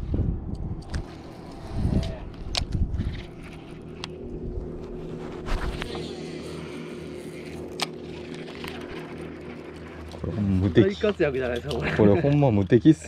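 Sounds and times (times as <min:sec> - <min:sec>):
boat motor humming: 0:00.8 - 0:13.0.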